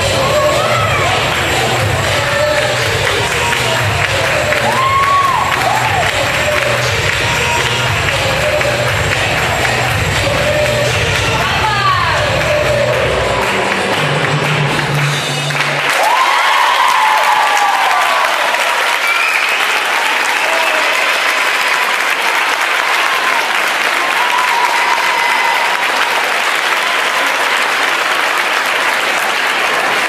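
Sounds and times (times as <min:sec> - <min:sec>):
voices cheering and calling out: 0:00.0 - 0:13.4
dance music: 0:00.0 - 0:18.4
audience clapping: 0:00.0 - 0:30.0.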